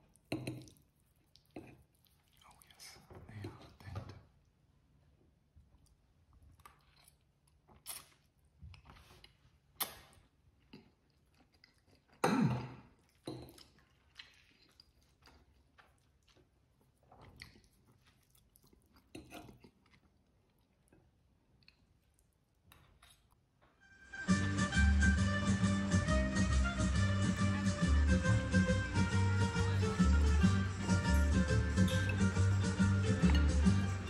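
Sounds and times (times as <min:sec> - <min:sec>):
person chewing: 0:00.0 - 0:03.0, 0:05.7 - 0:23.4.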